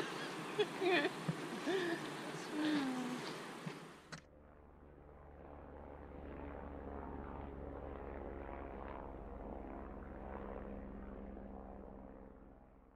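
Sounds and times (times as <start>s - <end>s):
helicopter engine and rotors drone: 3.5s - 12.9s.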